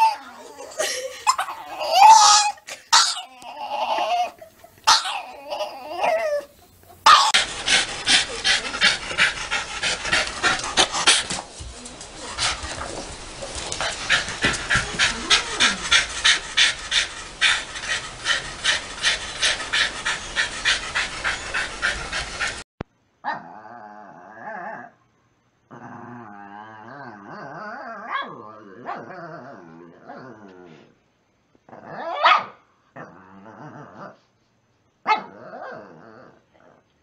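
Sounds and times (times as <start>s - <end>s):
dogs play growling: 0.0s - 22.7s, 25.7s - 31.0s, 33.0s - 34.3s, 35.3s - 36.9s
dog panting: 6.9s - 22.7s
dog barking: 32.2s - 32.6s, 35.1s - 35.3s.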